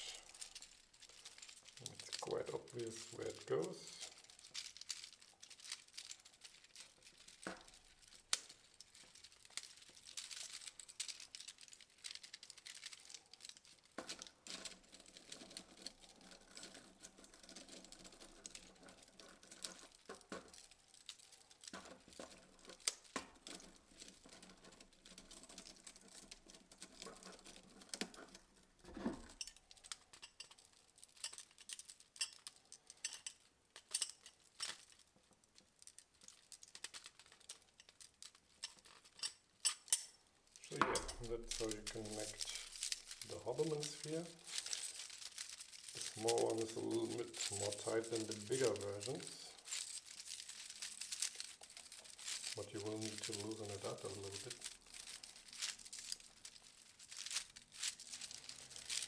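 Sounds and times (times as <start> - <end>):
plastic parts clicking and rattling: 0.0 - 59.0.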